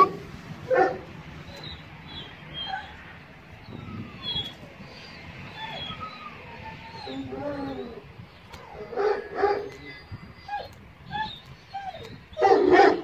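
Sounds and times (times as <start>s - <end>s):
small birds chirping: 1.4s - 12.7s
dog whimpering: 2.5s - 3.0s, 3.6s - 12.8s
dog barking: 8.9s - 9.8s, 12.4s - 13.0s.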